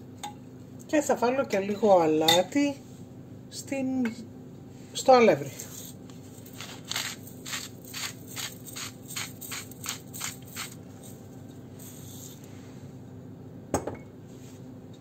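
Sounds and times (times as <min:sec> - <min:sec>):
salt mill grinding: 0:06.4 - 0:12.4.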